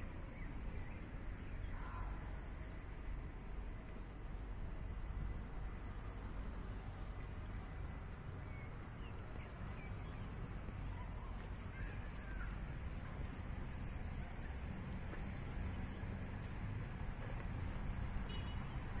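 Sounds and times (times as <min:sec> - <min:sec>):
steady low rumble: 0:00.0 - 0:18.2
small birds chirping: 0:05.7 - 0:19.0.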